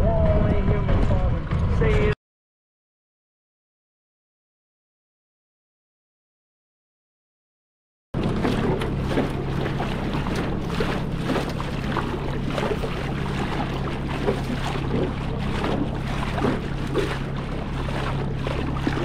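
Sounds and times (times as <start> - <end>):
outboard motor running: 8.2 - 19.0
water splashing against hull: 8.2 - 19.0.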